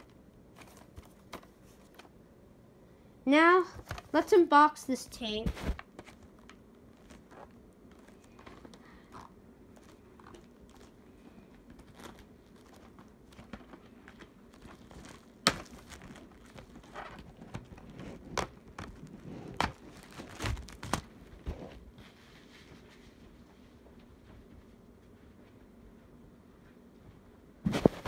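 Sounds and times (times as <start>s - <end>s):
packaging rustling and crinkling: 0.0s - 2.1s, 3.7s - 4.2s, 5.4s - 21.9s.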